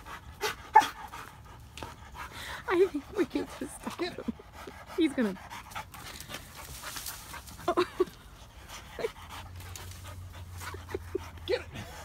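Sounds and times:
dog panting: 0.0 - 12.0.

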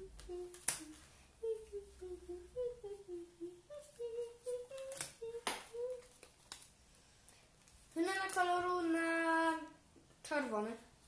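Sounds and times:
person humming: 0.0 - 6.2.

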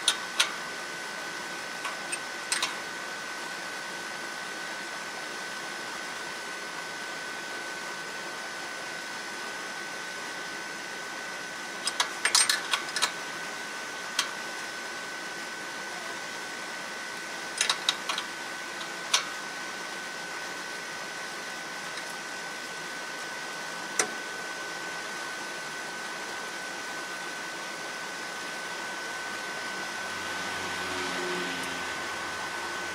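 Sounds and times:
sharp metallic clicks and taps: 1.8 - 2.8.

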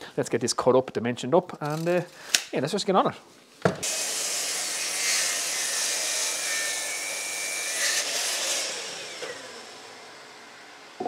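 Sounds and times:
mitre saw cutting wood: 3.8 - 11.0
saw blade winding down: 3.8 - 11.0.

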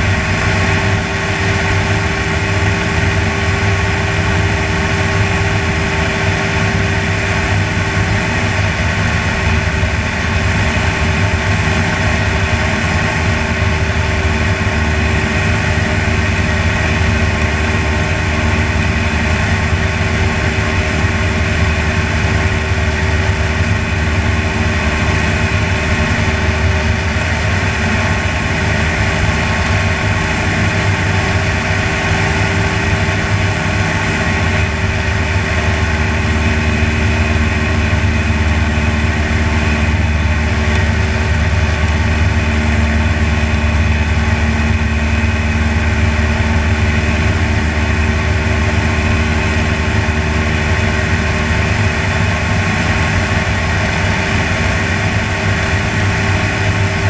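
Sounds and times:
propeller aircraft engine droning: 0.0 - 57.0.

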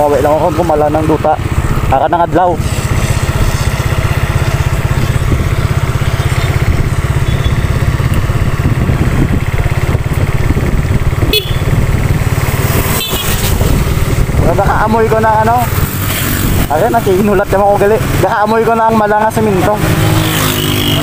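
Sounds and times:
motorcycle running: 0.0 - 21.0
wind buffeting microphone: 2.6 - 18.3.

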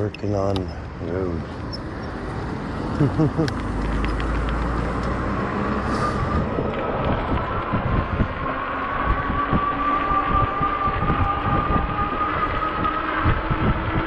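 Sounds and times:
wind on microphone: 0.0 - 14.0
electric motor whining: 3.4 - 14.0.

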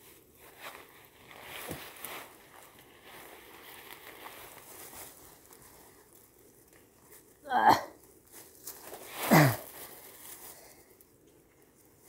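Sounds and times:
leafy branches rustling: 0.0 - 12.0.

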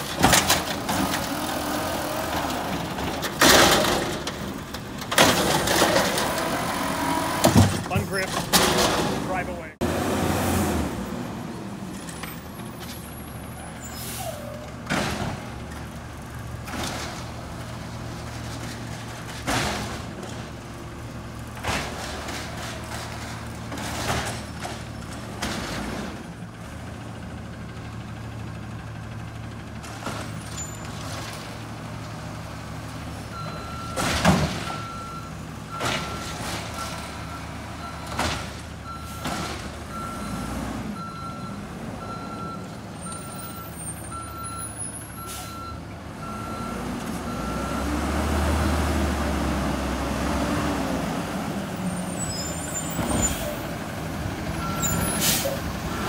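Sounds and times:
garbage truck diesel engine: 0.0 - 56.0
reversing alarm beeping: 33.4 - 34.0, 39.9 - 48.0, 54.6 - 55.2.

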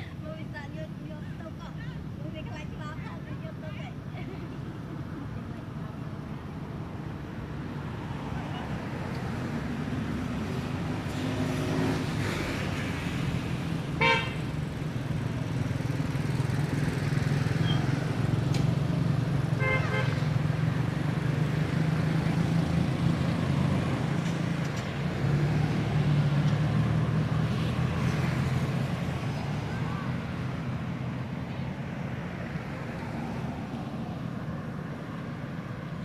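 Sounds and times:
low rumble of road traffic: 0.0 - 36.0
car horn toot: 14.0 - 14.4, 19.6 - 20.3.

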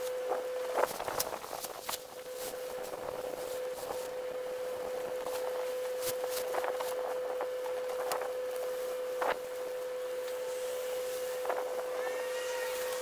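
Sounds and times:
steady hum: 0.0 - 13.0
faint gliding whistles: 10.5 - 13.0.

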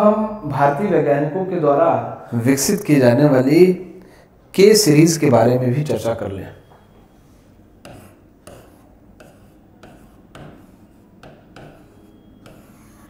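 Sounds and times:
marker writing on whiteboard: 6.5 - 13.0.

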